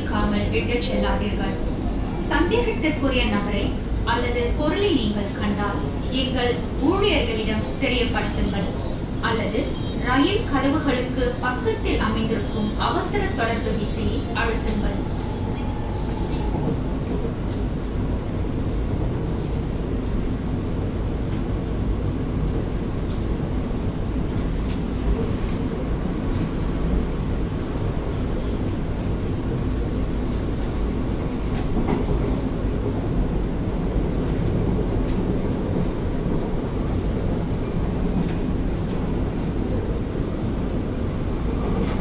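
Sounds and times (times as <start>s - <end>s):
metro train wheels rumbling: 0.0s - 42.0s
train clicks: 29.6s - 32.5s, 37.8s - 39.8s.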